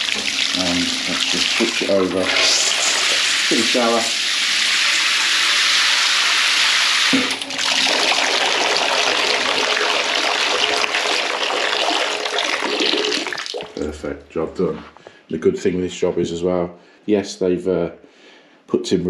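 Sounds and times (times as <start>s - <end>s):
water spraying from shower head: 0.0s - 7.3s.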